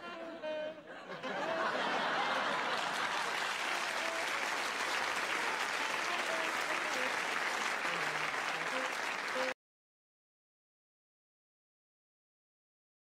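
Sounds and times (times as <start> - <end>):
faint saxophone: 0.0 - 1.8, 3.4 - 9.6
audience applause: 1.6 - 9.6.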